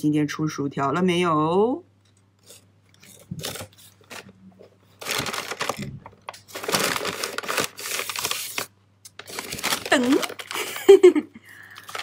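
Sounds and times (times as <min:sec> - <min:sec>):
paper packaging rustling: 0:02.4 - 0:12.0.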